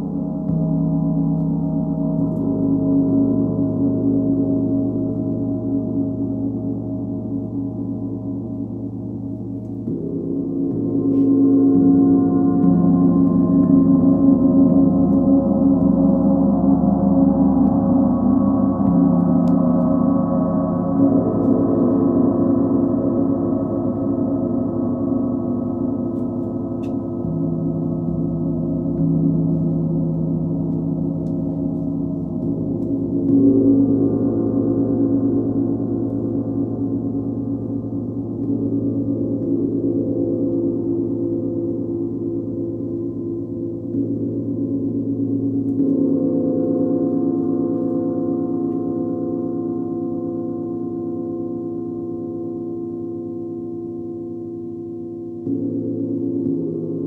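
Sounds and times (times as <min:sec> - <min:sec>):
large gongs ringing: 0:09.5 - 0:41.4.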